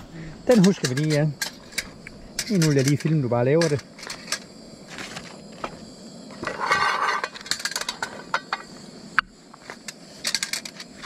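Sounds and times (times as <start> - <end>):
utensil scraping metal pan: 6.4 - 8.6.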